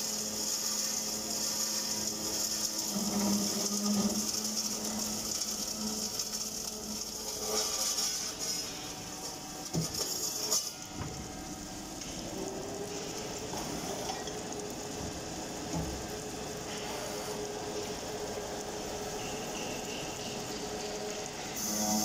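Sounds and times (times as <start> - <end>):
flowing coolant hiss: 0.0 - 22.0
saw blade cutting metal tube: 0.3 - 10.8
steady hum: 2.6 - 22.0.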